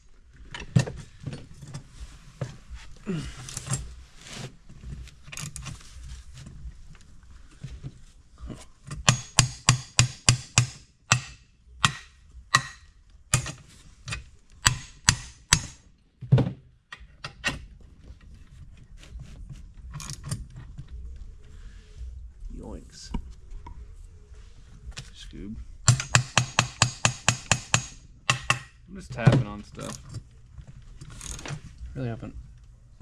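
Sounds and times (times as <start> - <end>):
hammer tapping on metal: 9.0 - 15.8, 25.9 - 28.8.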